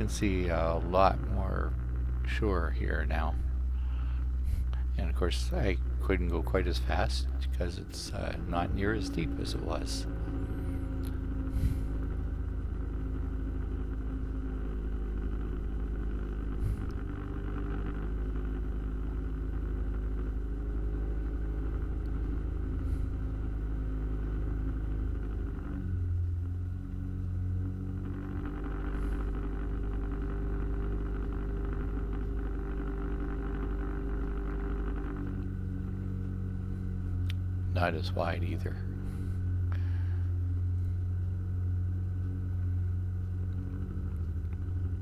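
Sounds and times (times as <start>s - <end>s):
outboard motor droning: 0.0s - 45.0s.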